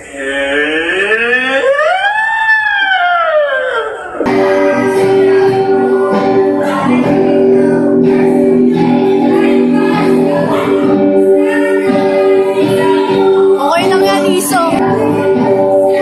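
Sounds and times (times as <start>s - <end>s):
music: 4.2s - 16.0s
girls singing into microphone: 4.3s - 16.0s.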